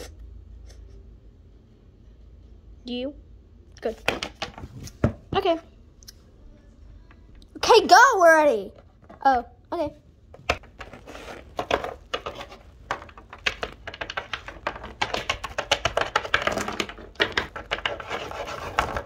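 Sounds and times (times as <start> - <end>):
plastic toys clicking on wooden table: 11.6 - 19.0.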